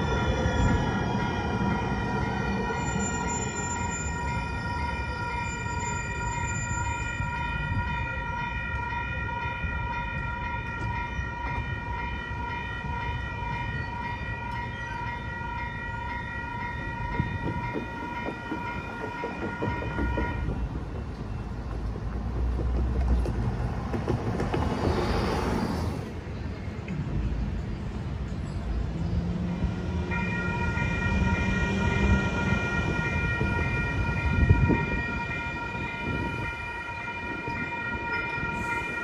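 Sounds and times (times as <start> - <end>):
railroad crossing bell ringing: 0.0 - 21.7, 29.7 - 39.0
road traffic rumble: 0.0 - 39.0.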